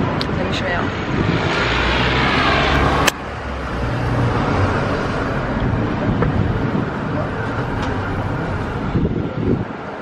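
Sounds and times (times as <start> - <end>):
cars driving past: 0.0 - 10.0
rumble of engines and tyres: 0.0 - 10.0.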